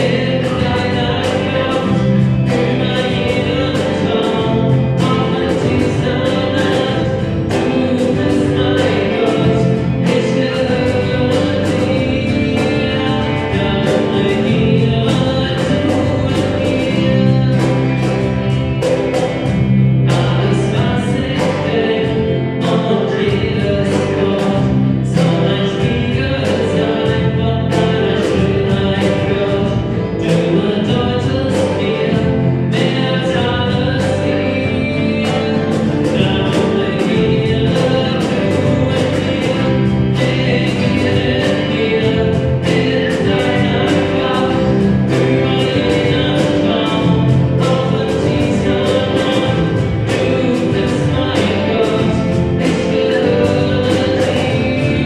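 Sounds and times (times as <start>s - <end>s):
bass guitar: 0.0s - 55.0s
electric guitar: 0.0s - 55.0s
live band playing: 0.0s - 55.0s
person singing: 0.0s - 55.0s.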